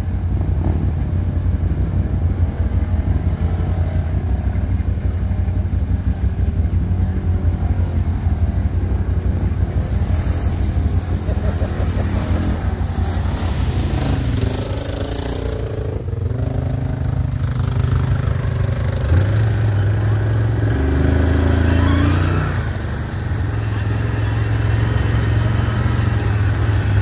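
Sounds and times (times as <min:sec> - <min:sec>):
quad bike engine humming: 0:00.0 - 0:27.0.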